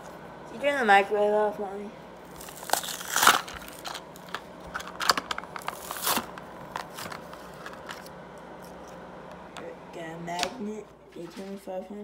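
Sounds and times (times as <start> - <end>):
plastic packaging crinkling: 2.4 - 8.1.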